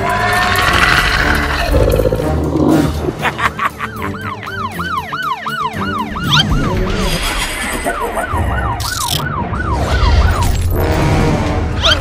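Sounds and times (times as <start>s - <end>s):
police siren yelping: 3.5s - 10.6s.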